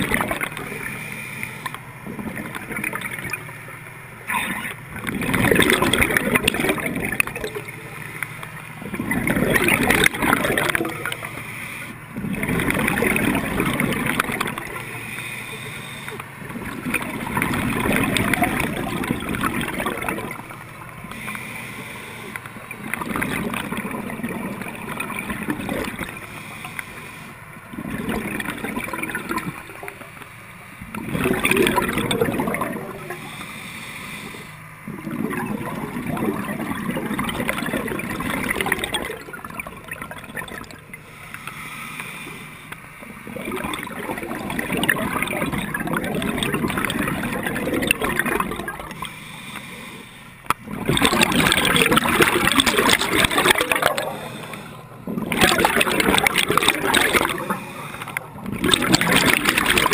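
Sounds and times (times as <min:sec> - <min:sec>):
gurgling exhaled bubbles: 0:00.0 - 0:30.2, 0:30.8 - 0:42.4, 0:43.0 - 0:59.9
diver breathing through regulator: 0:11.1 - 0:12.0, 0:14.8 - 0:16.4, 0:21.1 - 0:22.6, 0:25.8 - 0:27.5, 0:32.9 - 0:34.8, 0:41.0 - 0:43.1, 0:48.8 - 0:50.5, 0:52.9 - 0:55.1, 0:56.6 - 0:58.5.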